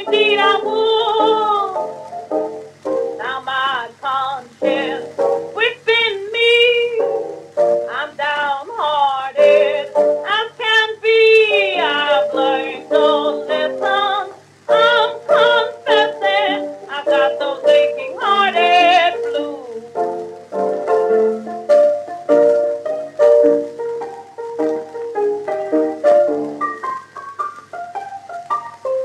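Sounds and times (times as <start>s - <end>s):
woman singing blues: 0.0s - 2.0s, 3.1s - 20.0s
piano accompaniment: 0.0s - 29.0s.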